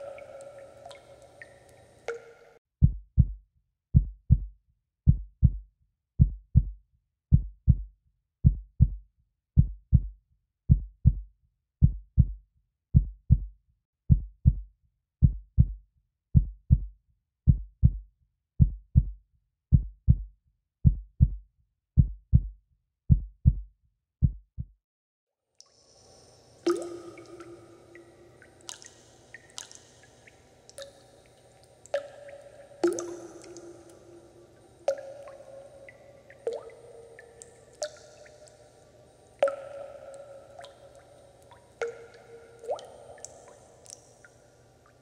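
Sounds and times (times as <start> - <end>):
heartbeat thumps: 2.8 - 3.4, 4.0 - 4.5, 5.1 - 5.6, 6.2 - 9.0, 9.6 - 10.1, 10.7 - 11.2, 11.8 - 12.4, 13.0 - 13.5, 14.1 - 14.6, 15.2 - 15.8, 16.4 - 16.9, 17.5 - 18.0, 18.6 - 21.4, 22.0 - 22.5, 23.1 - 24.8.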